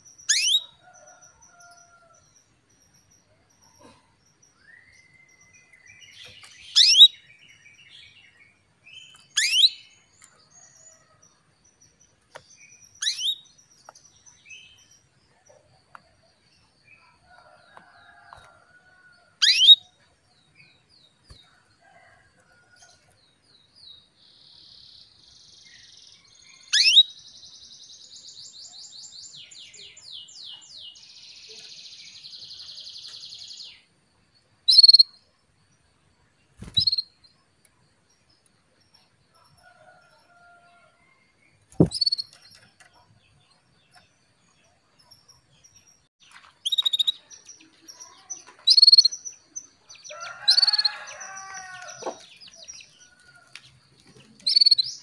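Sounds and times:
canary chirps sweeping down: 0.3 - 0.6, 9.4 - 9.8, 13.0 - 13.4, 36.6 - 37.1, 41.8 - 42.4.

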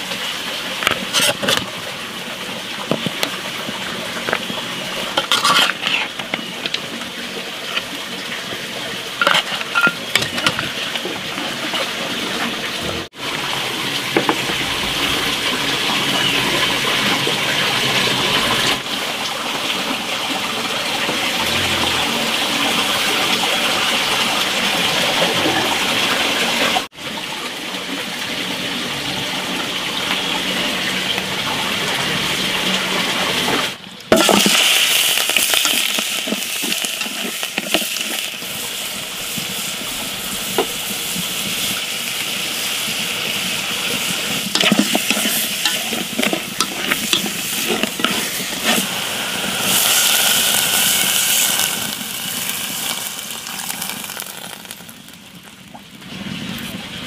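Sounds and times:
sauce sizzling in a wok: 0.0 - 12.3, 34.1 - 55.7.

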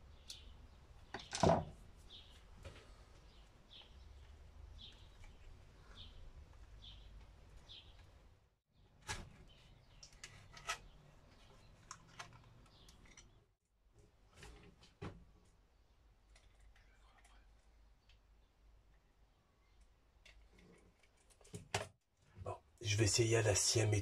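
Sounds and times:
bird chirping: 0.0 - 1.3, 2.0 - 8.2, 9.4 - 13.4.

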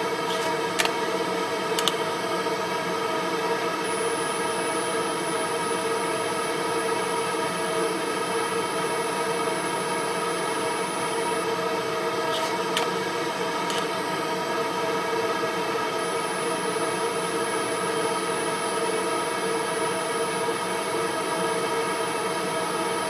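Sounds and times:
laser marker machine hum: 0.0 - 23.0
thin high whine: 3.8 - 12.8.

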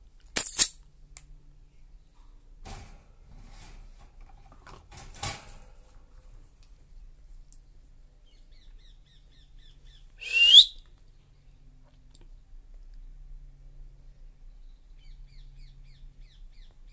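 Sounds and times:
small birds chirping: 6.9 - 11.6, 14.3 - 16.9.

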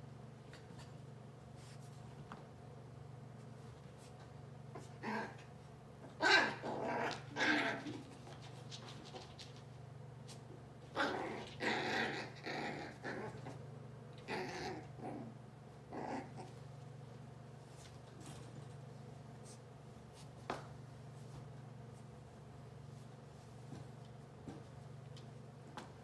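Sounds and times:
dog growling: 4.8 - 5.5, 6.2 - 8.1, 11.0 - 13.6, 14.2 - 16.5.

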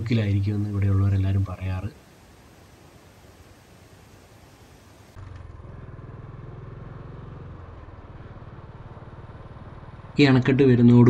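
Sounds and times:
steady rushing noise: 0.0 - 5.4
motorcycle engine running: 5.2 - 11.0.

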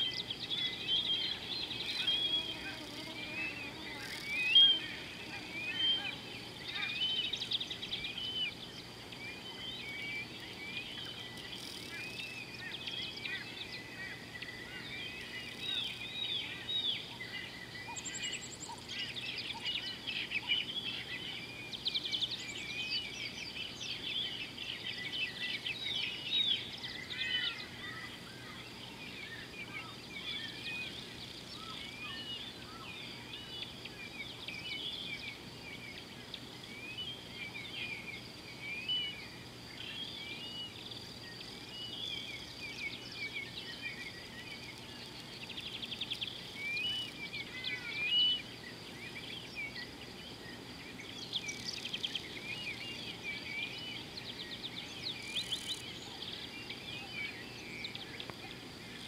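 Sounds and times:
birds chirping and whistling: 0.0 - 36.1, 36.7 - 58.5.

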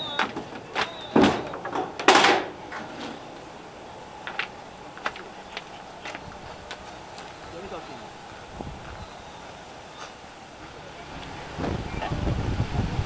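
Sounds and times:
door scraping: 0.0 - 3.6
door thudding shut: 0.2 - 2.8.

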